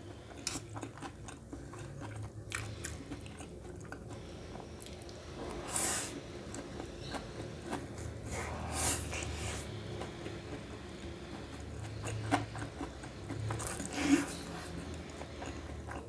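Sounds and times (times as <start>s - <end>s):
chewing with wet mouth clicks: 0.2s - 5.2s, 10.0s - 16.0s.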